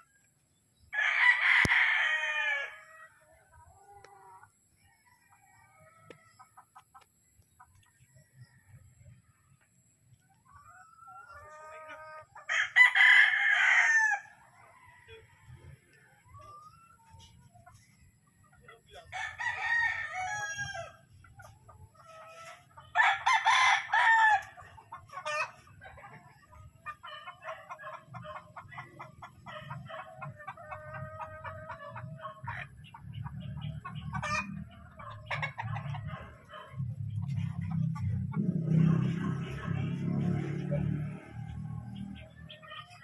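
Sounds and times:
roosters crowing: 0:00.9 - 0:06.7, 0:10.7 - 0:17.2, 0:19.0 - 0:21.3, 0:22.0 - 0:25.9, 0:33.6 - 0:43.0
fowl clucking: 0:10.4 - 0:14.2, 0:19.7 - 0:43.0.

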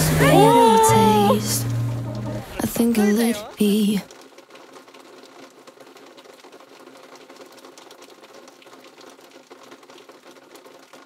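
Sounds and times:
rain pattering: 0:00.0 - 0:11.0.

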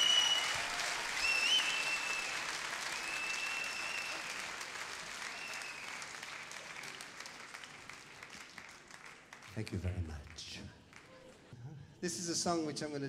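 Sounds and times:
crowd whistling: 0:00.0 - 0:04.5, 0:05.1 - 0:06.1
audience applauding: 0:00.0 - 0:11.5.

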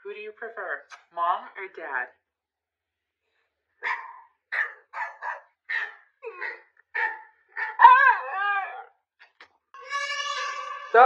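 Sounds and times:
dog yipping and howling: 0:03.8 - 0:06.0, 0:07.0 - 0:08.8.

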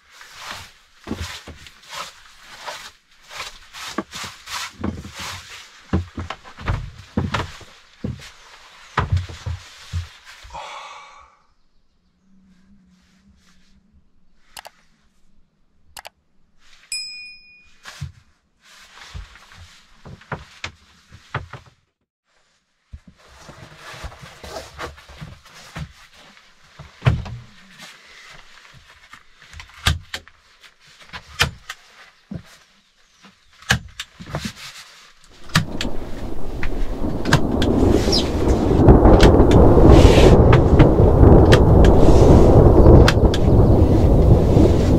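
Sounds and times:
mat rustling: 0:00.1 - 0:10.4, 0:17.8 - 0:27.0
short chime: 0:16.9 - 0:17.9
heavy rain: 0:35.3 - 0:44.9
thunder: 0:35.3 - 0:44.9.

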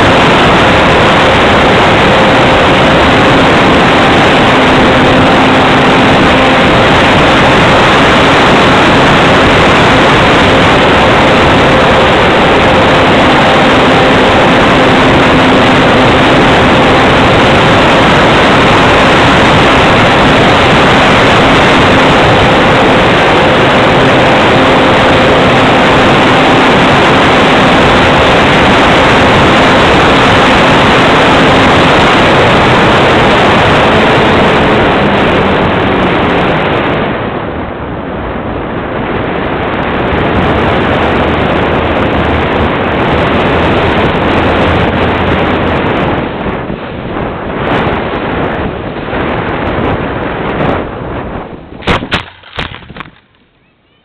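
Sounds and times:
model plane motor and propeller: 0:00.0 - 0:36.4
wind rush on microphone: 0:00.0 - 0:54.0.

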